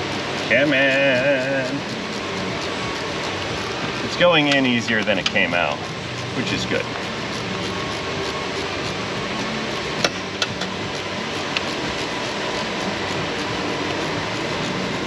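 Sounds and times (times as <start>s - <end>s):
steady rushing fan noise: 0.0s - 15.0s.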